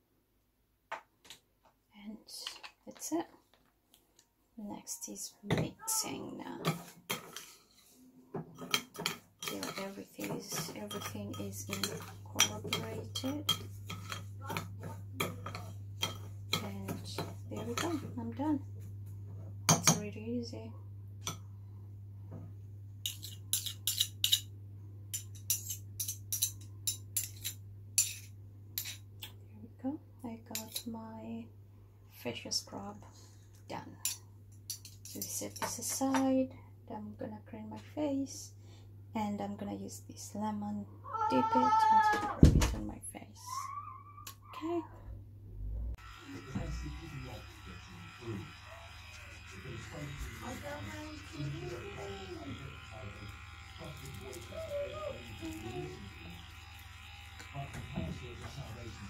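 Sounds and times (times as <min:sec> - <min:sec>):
metal spoon clinking glass bowl: 0:08.7 - 0:17.9
electric facial brush buzzing: 0:09.5 - 0:15.9, 0:16.6 - 0:18.4, 0:46.0 - 0:59.0
steady low hum: 0:42.9 - 0:59.0.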